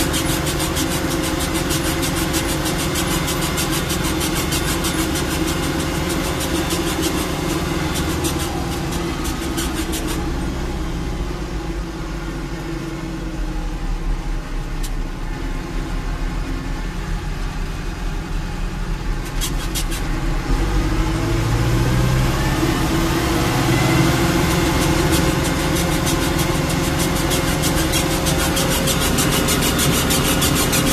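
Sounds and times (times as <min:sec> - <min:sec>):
tractor diesel engine droning: 0:00.0 - 0:30.9.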